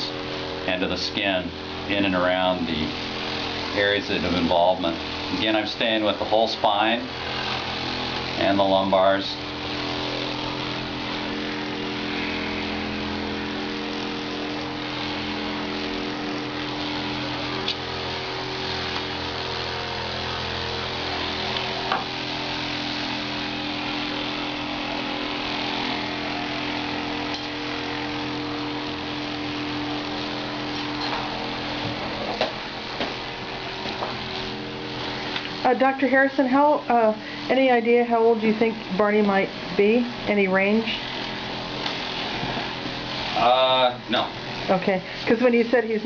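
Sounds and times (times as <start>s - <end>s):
massage device motor hum: 0.0s - 46.0s.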